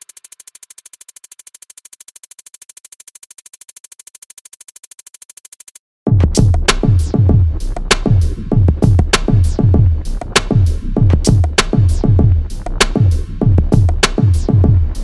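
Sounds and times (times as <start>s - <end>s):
deep bass hits and drums: 6.1s - 15.0s.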